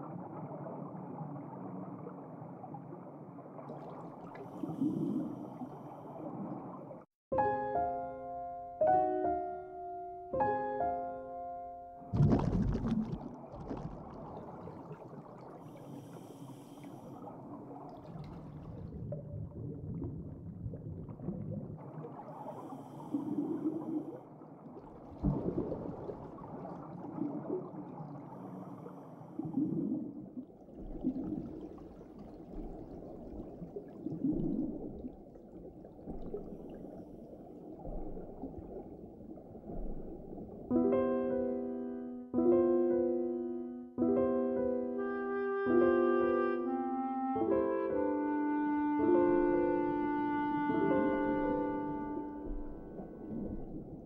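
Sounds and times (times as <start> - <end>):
air bubbles gurgling: 12.1 - 15.9, 17.2 - 28.6, 29.4 - 40.8, 50.8 - 54.0
underwater rumbling wash: 12.2 - 40.7, 49.2 - 54.0.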